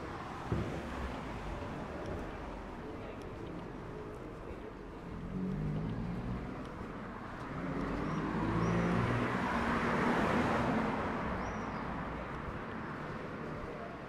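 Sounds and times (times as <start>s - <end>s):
vehicle passing by: 5.1s - 11.3s.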